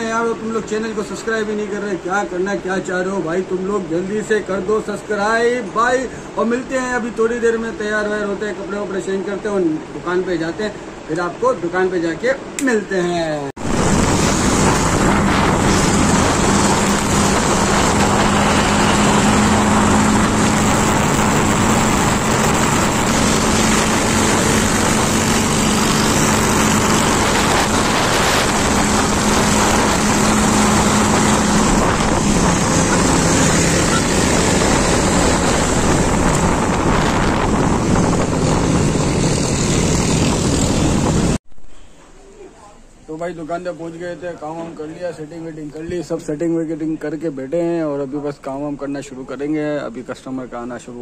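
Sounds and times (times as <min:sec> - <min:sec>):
motorcycle engine running: 0:13.6 - 0:41.4
wind noise on microphone: 0:13.6 - 0:41.7.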